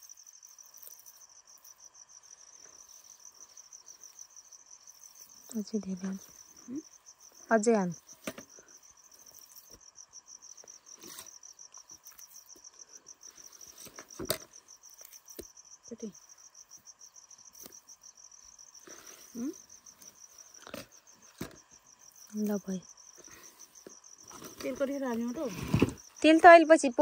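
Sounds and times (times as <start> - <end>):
cricket chirping: 0.0 - 27.0.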